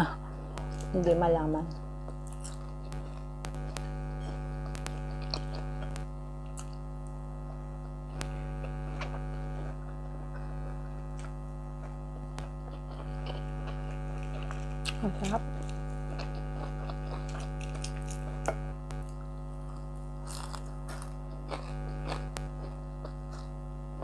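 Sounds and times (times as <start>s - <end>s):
air conditioner humming: 0.0s - 24.0s
chewing: 2.0s - 6.8s, 15.6s - 23.6s.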